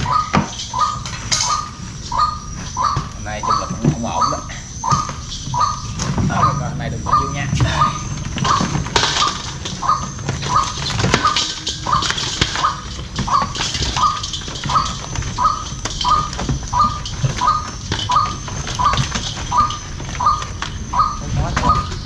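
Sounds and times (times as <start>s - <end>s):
fish flapping against metal: 7.3s - 22.0s.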